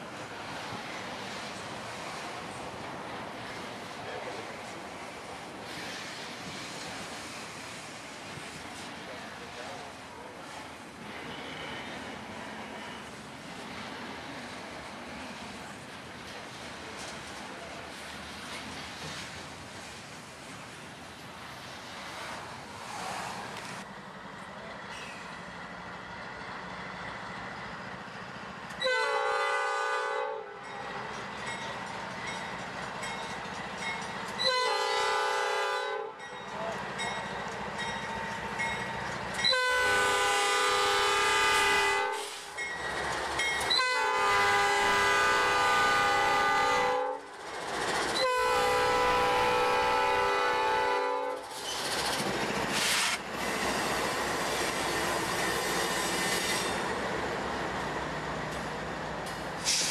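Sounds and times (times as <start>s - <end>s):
freight train rumbling by: 0.0s - 59.9s
train horn blasts: 28.8s - 30.6s, 34.4s - 36.2s, 39.4s - 42.4s, 43.7s - 47.3s, 48.2s - 51.4s.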